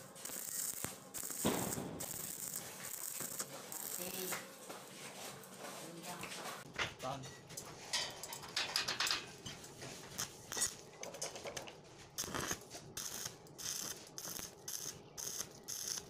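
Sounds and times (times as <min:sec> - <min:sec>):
welding arc crackling: 0:00.0 - 0:04.6, 0:10.1 - 0:16.0.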